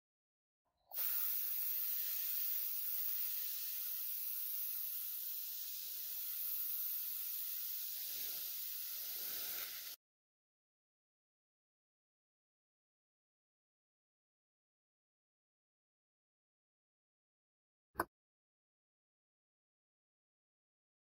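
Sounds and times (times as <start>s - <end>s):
airbrush spraying hiss: 0.9s - 10.0s.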